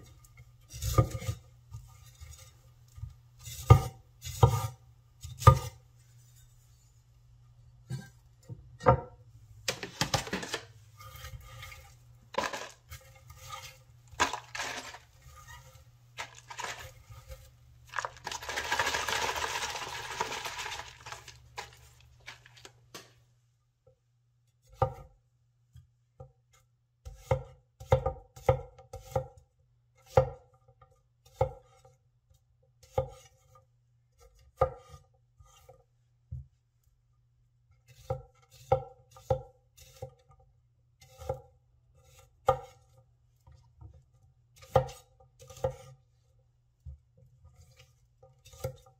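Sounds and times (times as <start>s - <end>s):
rustling into plastic tub: 9.7s - 10.8s, 12.3s - 12.9s, 14.2s - 15.1s, 16.2s - 17.1s, 17.9s - 23.1s.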